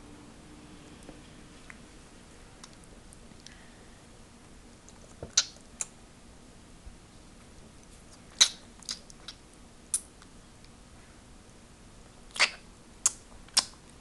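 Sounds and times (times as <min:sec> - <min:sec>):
baby's wet mouth smacks: 0:08.4 - 0:10.1, 0:12.3 - 0:13.8.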